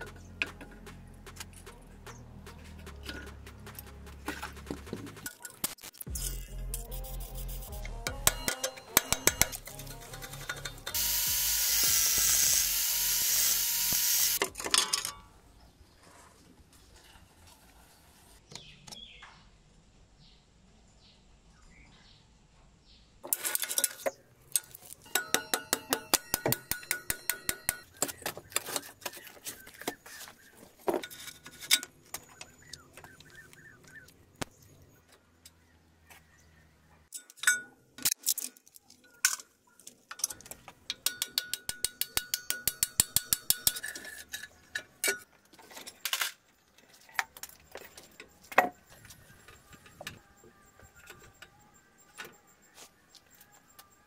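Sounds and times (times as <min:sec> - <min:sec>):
rapid metallic clicks: 0:00.0 - 0:06.0
metal parts clinking: 0:23.2 - 0:29.0.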